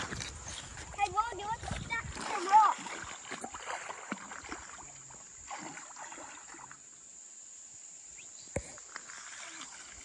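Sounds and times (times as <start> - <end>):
feet splashing in shallow water: 0.0 - 7.0, 8.6 - 10.0
high insect drone: 2.7 - 10.0.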